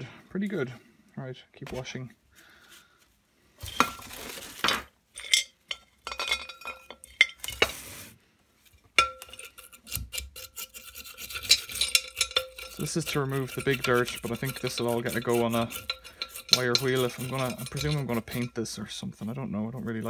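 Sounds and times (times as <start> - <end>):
metal parts clinking on glass: 5.1 - 7.6, 11.3 - 13.8
brush scrubbing: 9.6 - 20.0.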